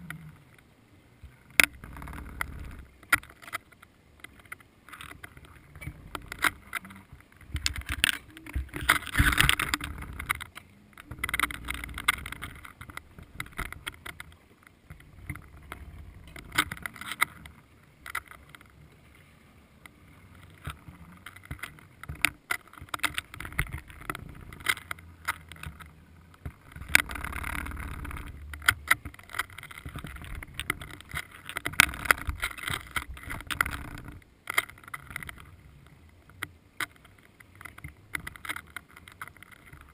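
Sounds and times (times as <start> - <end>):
muffled underwater water noise: 0.0 - 39.9
clicks and knocks from camera rig: 1.2 - 18.7.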